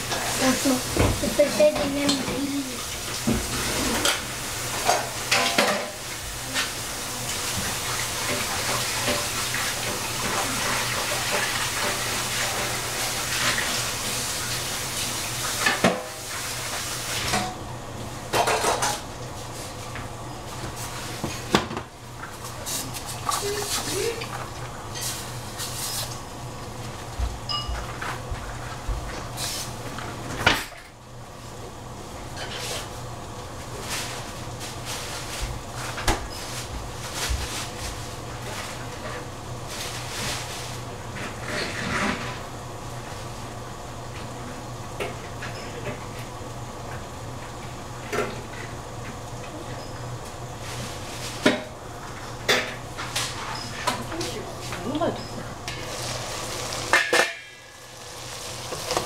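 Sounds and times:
food sizzling in a pan: 0:00.0 - 0:17.4, 0:55.7 - 0:59.0.

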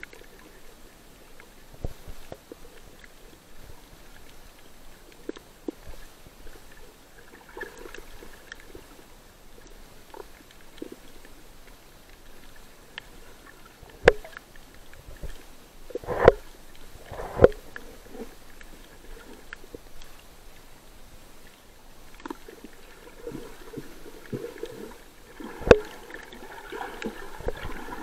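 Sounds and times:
underwater hiss: 0:15.9 - 0:18.4, 0:22.3 - 0:28.0.

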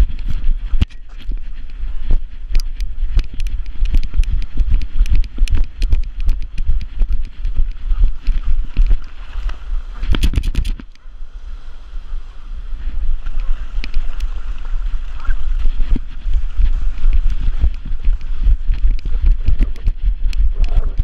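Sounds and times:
wind buffeting microphone: 0:00.0 - 0:21.0
camera knocks and thumps: 0:10.0 - 0:10.9.

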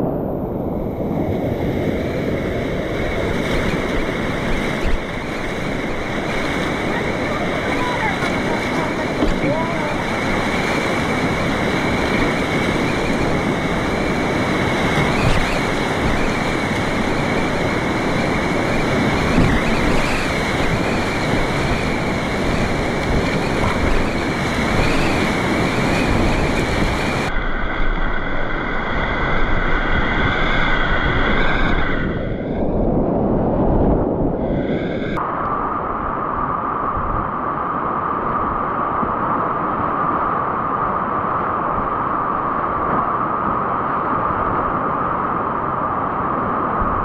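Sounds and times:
wind buffeting microphone: 0:00.0 - 0:47.0
river rapids rushing: 0:03.0 - 0:27.3.

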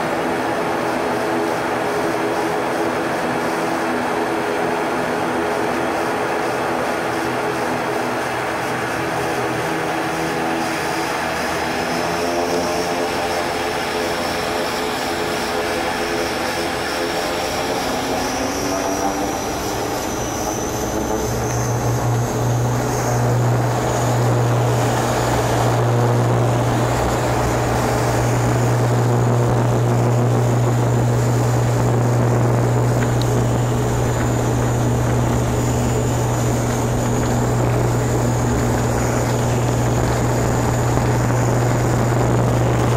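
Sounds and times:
steady low drone: 0:00.0 - 0:42.9
turboprop engines in cabin: 0:00.0 - 0:42.9
high whine rising in pitch: 0:16.0 - 0:42.9.

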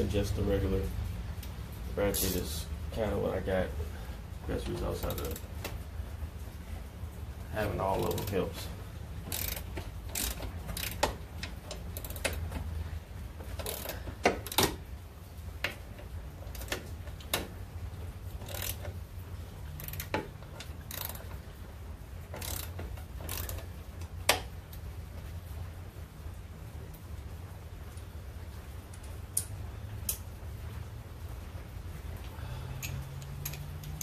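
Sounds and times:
socket ratchet clicking: 0:09.2 - 0:12.6, 0:13.6 - 0:14.8, 0:18.4 - 0:19.0, 0:19.7 - 0:21.4, 0:22.4 - 0:23.7, 0:32.8 - 0:34.0.

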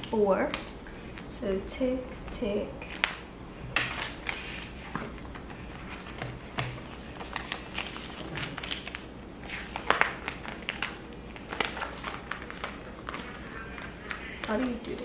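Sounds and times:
paper banknotes rustling: 0:03.8 - 0:15.0.

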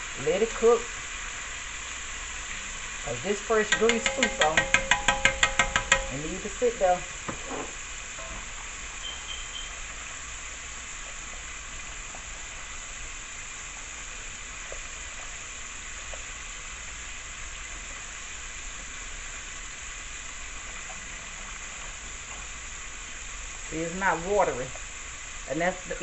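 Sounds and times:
wings sizzling in oil: 0:00.0 - 0:26.0
oil popping: 0:03.6 - 0:06.6.

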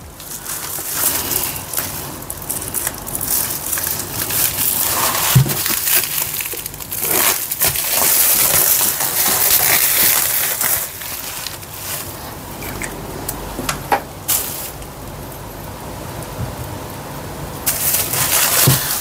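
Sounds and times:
bubble wrap crinkling: 0:00.0 - 0:12.9, 0:14.2 - 0:15.1, 0:17.6 - 0:19.0.

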